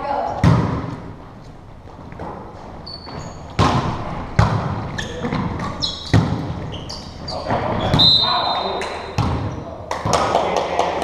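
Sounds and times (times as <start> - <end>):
volleyball smacks echoing: 0.3 - 1.1, 3.5 - 6.6, 8.8 - 10.3
sneaker squeaks on floor: 2.8 - 4.0, 4.9 - 9.6.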